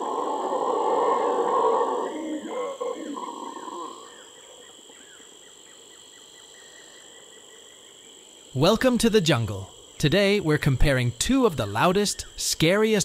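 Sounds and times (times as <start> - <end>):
howler monkey roaring: 0.0 - 4.7
insect drone: 0.0 - 13.0.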